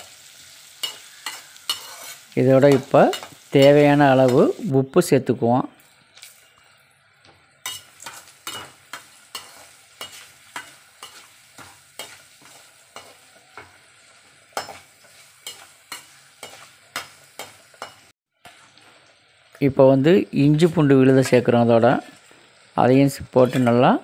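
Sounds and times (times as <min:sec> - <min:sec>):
onions sizzling in oil: 0:00.0 - 0:24.0
metal ladle scraping a steel pan: 0:00.9 - 0:02.2.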